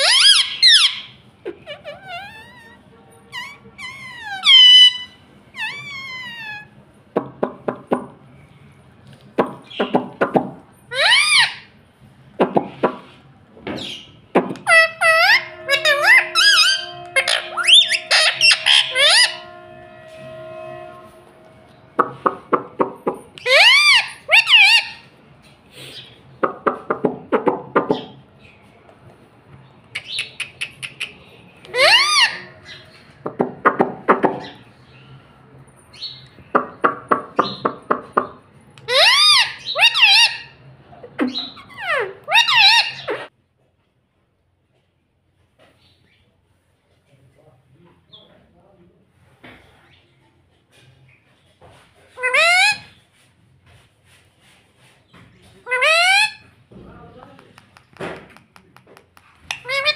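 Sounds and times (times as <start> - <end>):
parakeet high calls: 0.0 - 6.8, 10.9 - 11.7, 13.8 - 21.2, 23.3 - 25.1, 30.0 - 33.0, 38.8 - 40.6, 41.3 - 43.3, 52.2 - 53.0, 55.7 - 56.5, 59.5 - 59.9.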